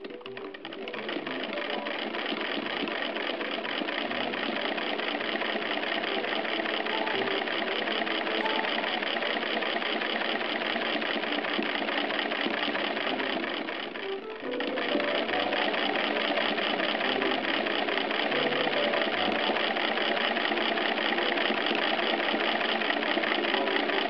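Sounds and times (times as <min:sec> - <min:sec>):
hand-crank sewing machine clatter: 0:00.0 - 0:24.0.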